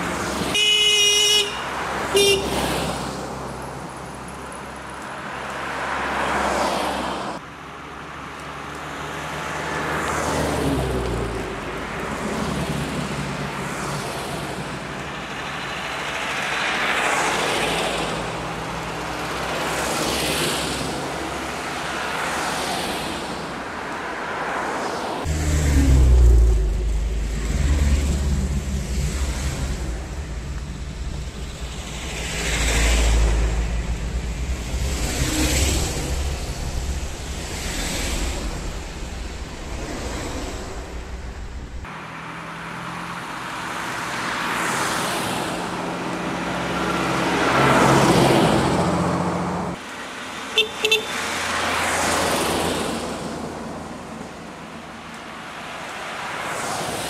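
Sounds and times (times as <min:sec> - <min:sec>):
cars driving past: 0:00.0 - 0:57.0
car horn toots: 0:00.5 - 0:02.7, 0:50.5 - 0:51.2.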